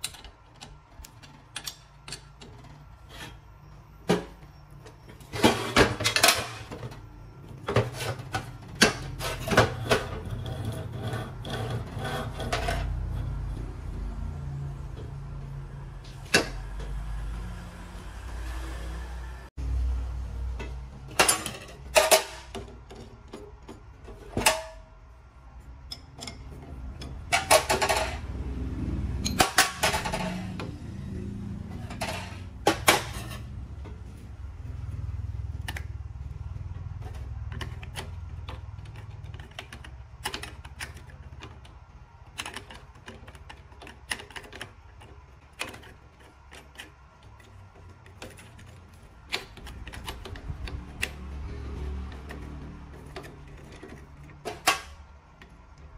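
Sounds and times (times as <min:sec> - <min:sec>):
metal parts clicking and clinking: 0:00.0 - 0:03.4, 0:21.1 - 0:24.8, 0:25.8 - 0:28.3, 0:29.2 - 0:30.8.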